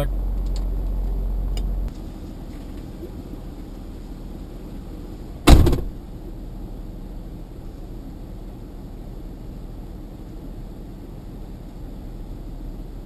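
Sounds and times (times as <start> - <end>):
car engine running: 0.0 - 13.0
car door slamming: 5.4 - 6.0.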